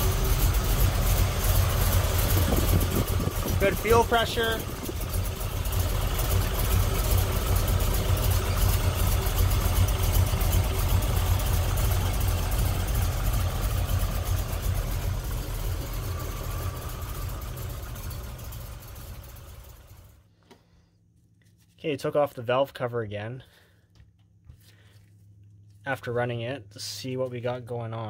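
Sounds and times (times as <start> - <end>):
car engine idling: 0.0 - 20.2.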